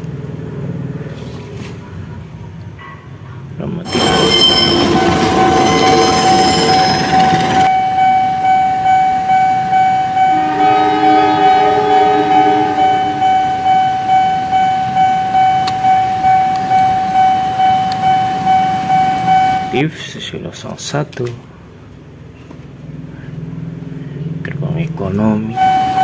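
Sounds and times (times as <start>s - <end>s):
level crossing bell ringing: 3.8s - 19.7s
train wheel noise: 3.9s - 7.7s
low two-tone horn: 10.2s - 14.8s.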